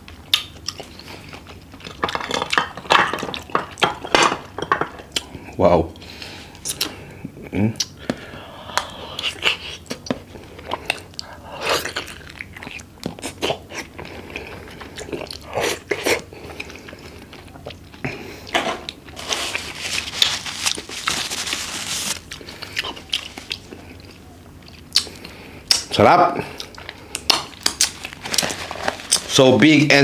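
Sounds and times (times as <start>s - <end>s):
wet chewing and lip smacks: 0.1s - 1.8s, 9.2s - 18.0s, 22.2s - 25.9s.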